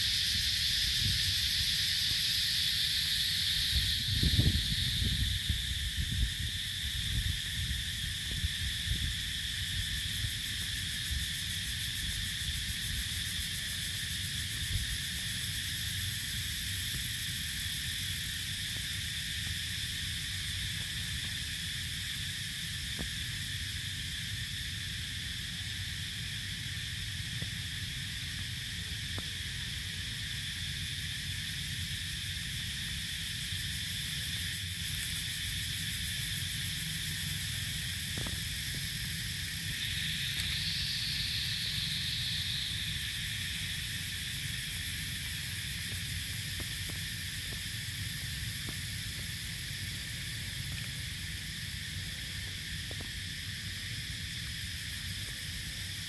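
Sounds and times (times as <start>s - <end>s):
insect chorus drone: 0.0s - 56.0s
low wind rumble on microphone: 3.4s - 13.4s.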